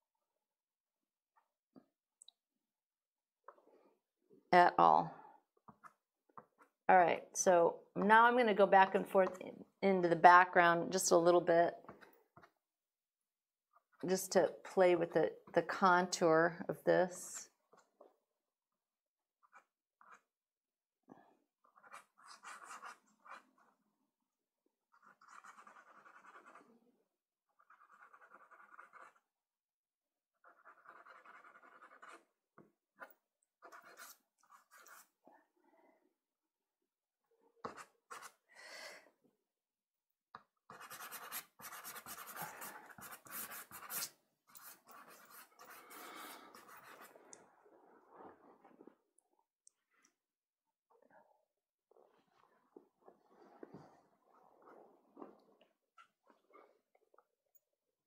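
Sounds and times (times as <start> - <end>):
pastel stick scratching on paper: 19.4 - 20.3, 21.6 - 23.8, 24.9 - 26.7, 27.6 - 29.3, 30.4 - 32.3, 33.6 - 35.2, 37.6 - 38.4, 40.7 - 47.3.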